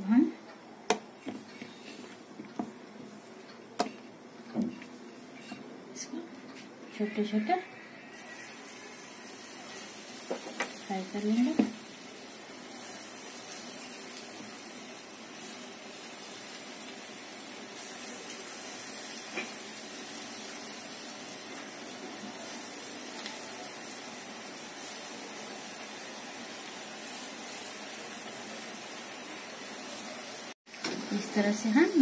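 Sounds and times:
fritters deep-frying in oil: 7.2 - 32.0.

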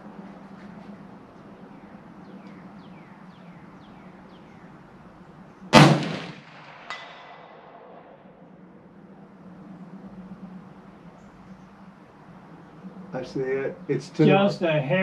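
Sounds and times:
rifle shot: 5.7 - 8.1
faint ringing crack: 5.8 - 8.7.

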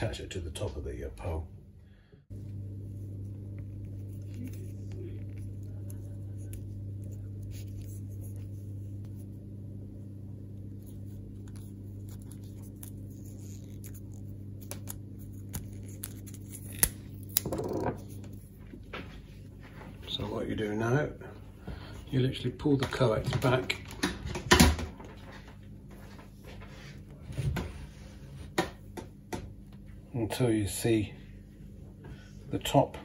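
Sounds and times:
steady low hum: 0.0 - 33.0
hands handling wire and tape: 3.6 - 9.3, 10.7 - 19.1.

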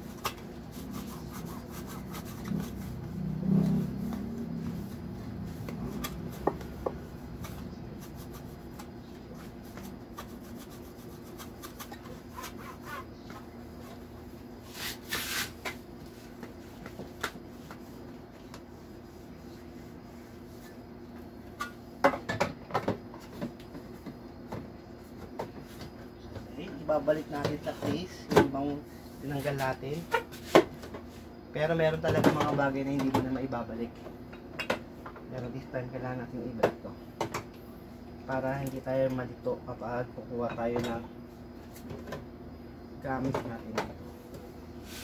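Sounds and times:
cloth rubbing on plastic tray: 0.6 - 6.4, 44.8 - 45.0
brief scrape: 14.7 - 15.6.

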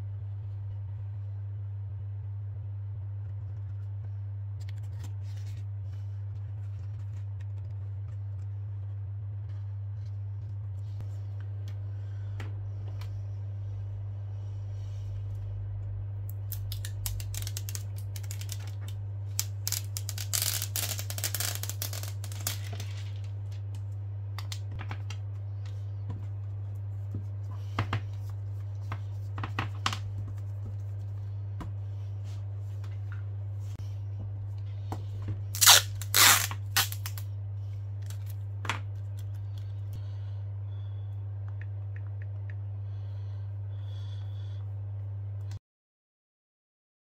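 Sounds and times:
steady low hum: 0.0 - 45.6
adhesive liner peeling: 19.3 - 22.6, 35.6 - 37.2.

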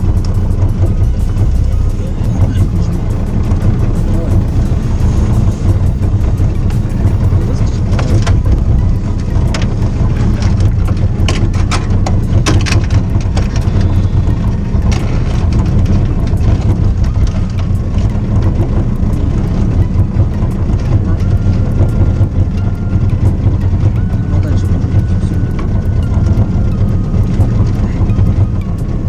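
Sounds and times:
boat motor running: 0.0 - 29.0
tackle clicks and knocks: 6.6 - 19.0.

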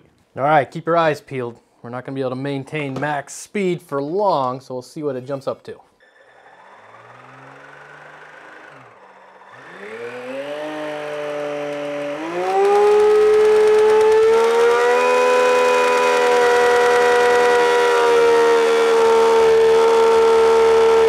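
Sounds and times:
supercharger whine: 6.0 - 21.0.

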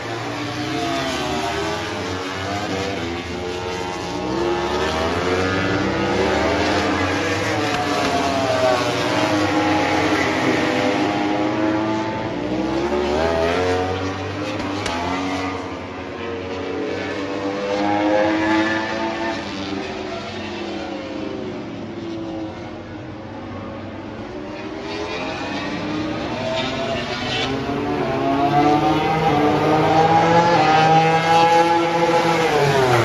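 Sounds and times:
racing motorcycles revving: 0.0 - 33.0.

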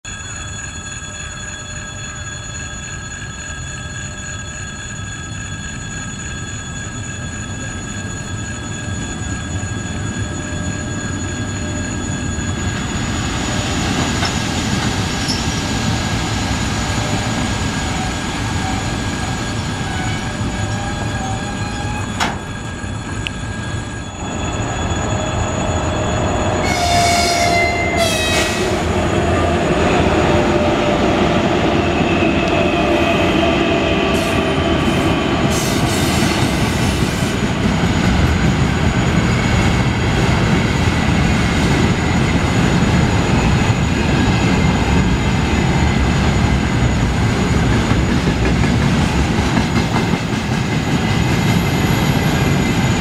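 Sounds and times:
electric locomotives passing: 0.2 - 53.0
short pitched horn blasts: 26.6 - 28.8.

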